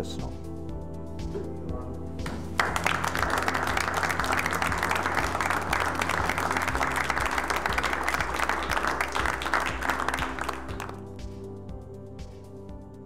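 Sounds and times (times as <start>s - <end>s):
background music: 0.0s - 13.0s
audience applauding: 2.2s - 11.0s.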